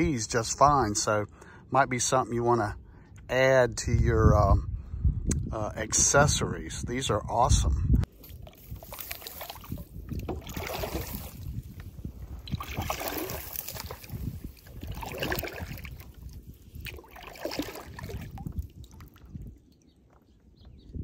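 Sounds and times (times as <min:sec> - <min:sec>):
paddle splashing in water: 0:08.2 - 0:11.6, 0:12.4 - 0:19.2.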